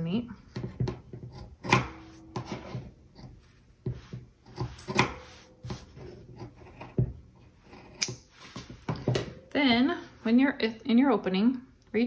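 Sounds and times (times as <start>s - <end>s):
scissors snipping fabric: 4.5s - 7.0s, 7.7s - 8.3s.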